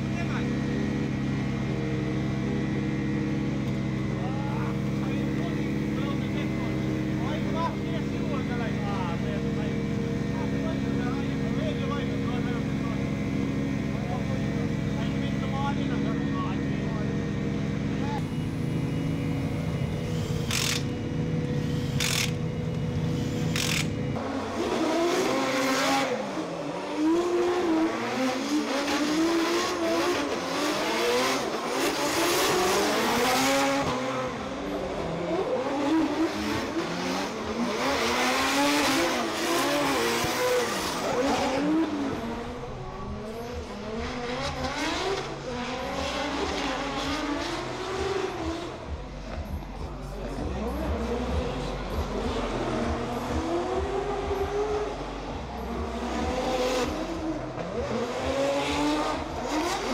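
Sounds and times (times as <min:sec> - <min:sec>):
car engine revving hard: 0:00.0 - 0:59.9
impact wrench bursts: 0:20.1 - 0:21.0, 0:21.6 - 0:22.4, 0:23.1 - 0:24.0.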